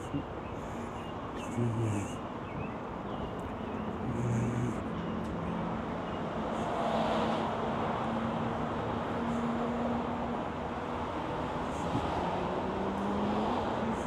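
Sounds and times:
low hum of engines: 0.0 - 14.0
car passing: 3.6 - 14.0.

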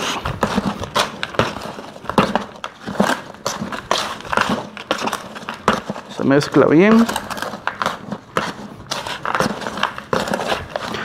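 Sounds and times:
hand stirring gritty soil: 0.0 - 11.0.

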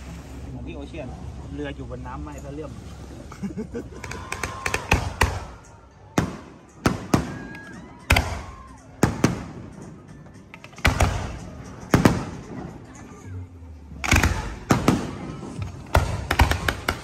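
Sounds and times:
fireworks bangs with rumbling echo: 6.2 - 7.5, 8.1 - 9.6, 10.8 - 12.5, 14.1 - 17.0.

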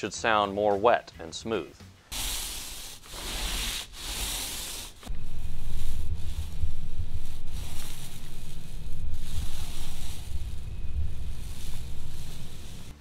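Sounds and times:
paint roller rolling on wall: 2.1 - 13.0.

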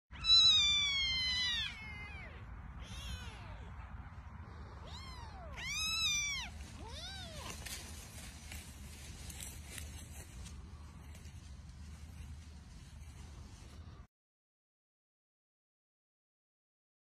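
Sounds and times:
kittens meowing: 0.1 - 7.8.

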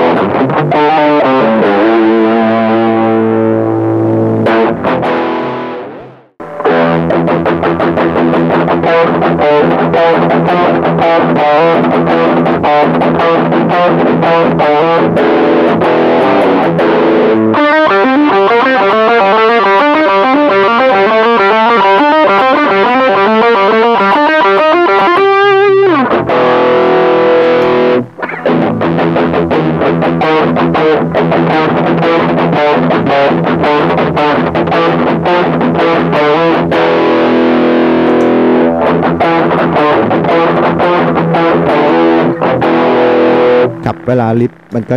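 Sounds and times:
distorted electric guitar: 0.0 - 44.9.

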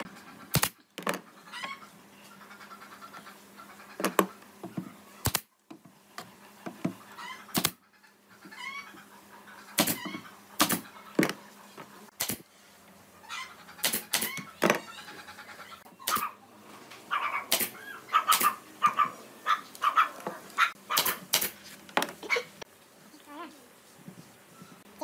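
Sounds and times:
nail gun firing into wood: 0.5 - 0.8, 5.2 - 5.5, 7.5 - 7.8, 9.8 - 10.0, 10.6 - 10.8, 12.2 - 12.4, 13.8 - 14.4, 16.1 - 16.3, 17.5 - 18.5, 21.0 - 21.6.

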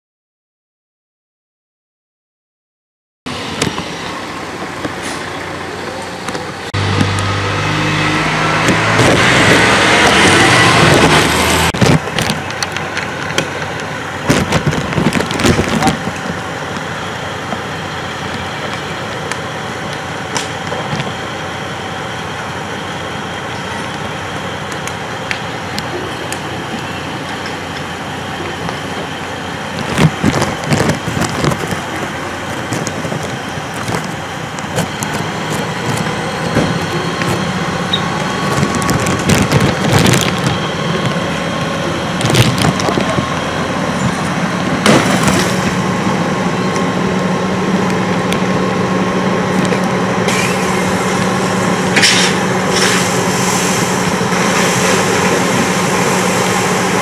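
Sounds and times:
fire engine running: 3.3 - 57.0
fire popping and cracking: 9.0 - 21.4, 29.7 - 37.5, 38.2 - 43.8.

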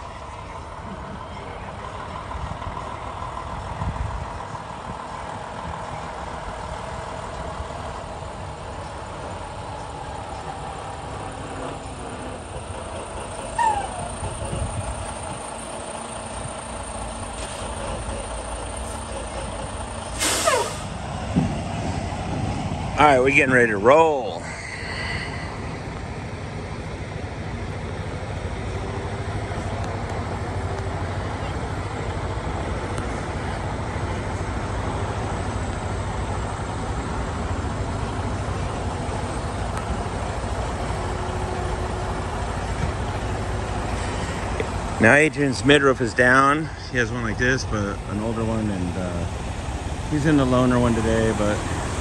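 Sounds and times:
truck diesel engine rumbling: 0.0 - 52.0
loud hiss with falling whistle: 20.2 - 20.9.

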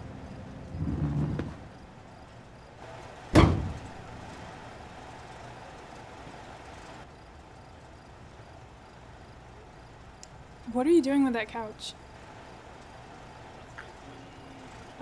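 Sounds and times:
faint steady hum: 0.0 - 15.0
loud bang against truck: 3.3 - 3.9.

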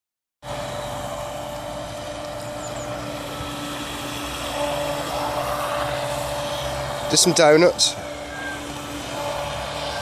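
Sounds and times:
model boat electric motor whine: 0.4 - 10.0.

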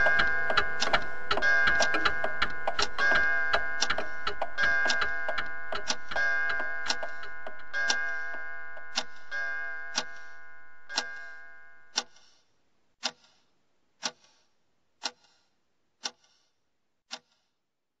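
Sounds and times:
ringing many-toned sound: 0.0 - 11.9
clock ticking: 0.0 - 12.4, 13.0 - 16.5, 17.1 - 17.5.

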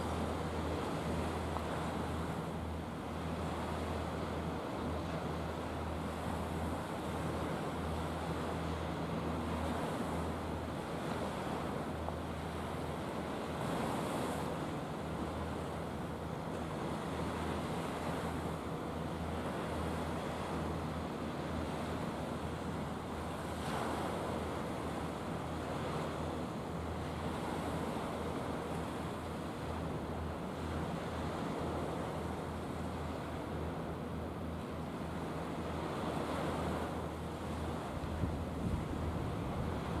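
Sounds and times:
wind on microphone: 37.6 - 40.0.

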